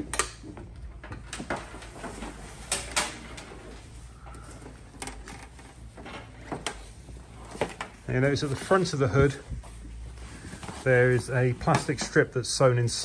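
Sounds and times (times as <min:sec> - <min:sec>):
thick fabric rustling and sliding: 0:06.9 - 0:12.2.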